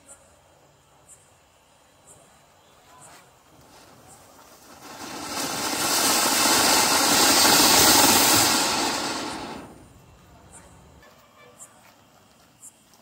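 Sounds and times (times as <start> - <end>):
firework sparks hissing: 2.5 - 10.3.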